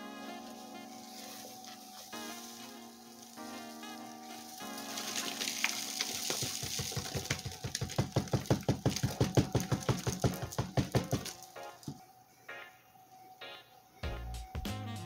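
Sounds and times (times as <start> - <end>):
light background music: 0.0 - 15.0
roaches rustling and pattering: 0.2 - 12.0
cardboard box knocks: 6.2 - 11.4.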